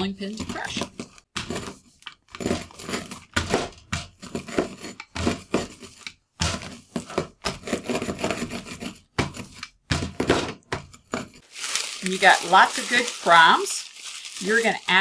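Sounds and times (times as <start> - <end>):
rolling pin crushing cookies: 0.3 - 13.3
plastic bag crinkling: 11.4 - 15.0.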